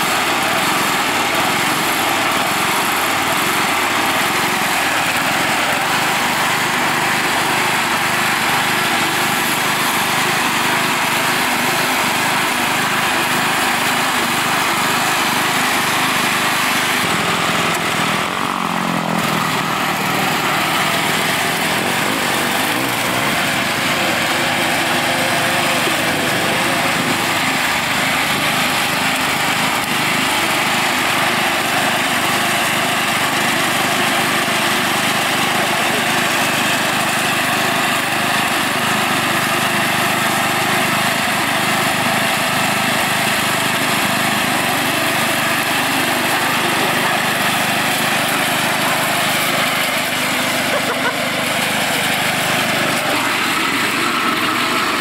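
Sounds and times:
riding mower engine running: 0.0 - 55.0.

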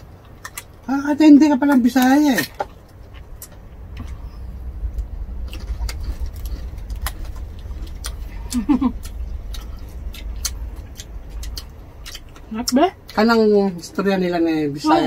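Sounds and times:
low steady rumble: 0.0 - 15.0
crackling skin torn and chewed: 4.9 - 13.2.

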